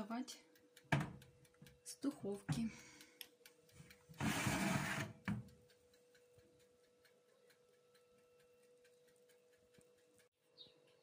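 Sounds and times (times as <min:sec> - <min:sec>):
fast regular ticking: 0:00.0 - 0:11.0
metal baking tray scraping: 0:04.2 - 0:05.2.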